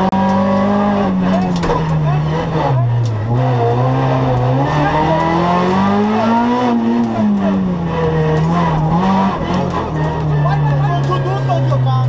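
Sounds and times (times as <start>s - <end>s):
rally car engine from inside: 0.0s - 12.0s
tyres squealing: 0.8s - 12.0s.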